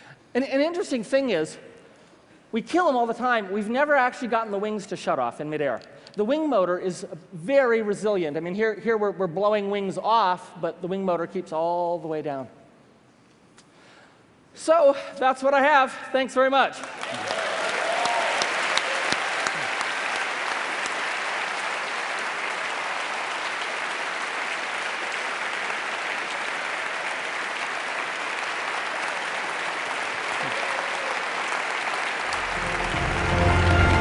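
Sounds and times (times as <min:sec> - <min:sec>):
audience applauding: 0:16.8 - 0:34.0.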